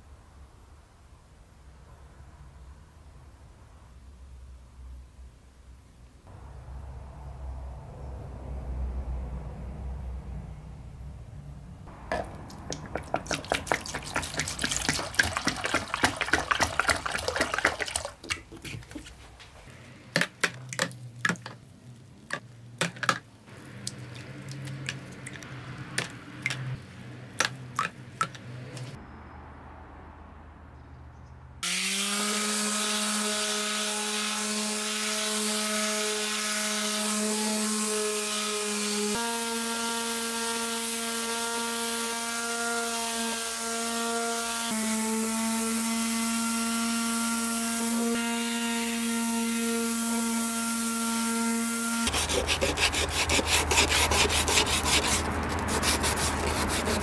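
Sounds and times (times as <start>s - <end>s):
electric sander humming: 31.6s - 57.0s.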